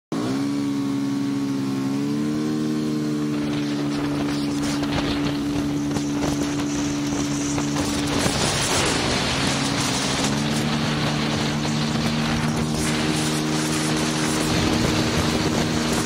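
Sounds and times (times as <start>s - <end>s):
motorcycle engine accelerating: 0.1s - 16.0s
wind noise on camera: 3.1s - 16.0s.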